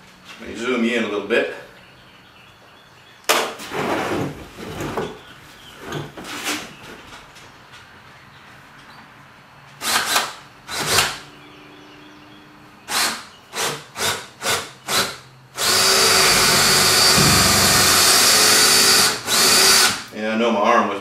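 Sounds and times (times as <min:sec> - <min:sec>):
cordless drill boring into wood: 0:12.9 - 0:20.1.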